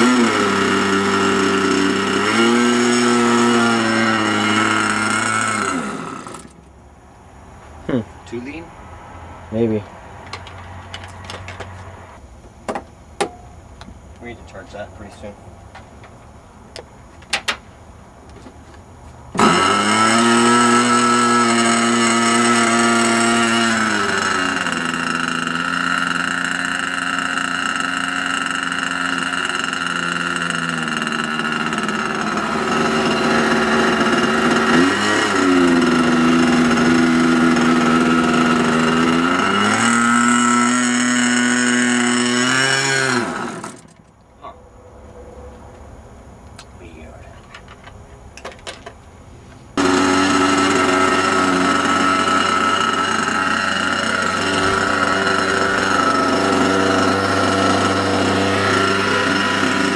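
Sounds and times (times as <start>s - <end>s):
model airplane engine buzzing: 0.0s - 6.6s, 19.3s - 44.0s, 49.8s - 59.9s.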